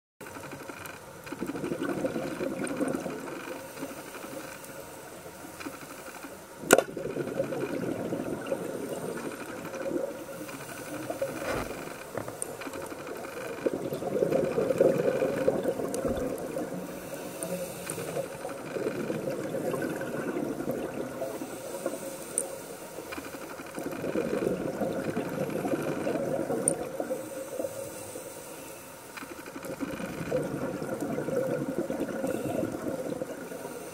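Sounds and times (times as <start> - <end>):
underwater regulator bubbles: 1.4 - 3.5, 6.6 - 22.5, 23.7 - 27.8, 29.5 - 33.9.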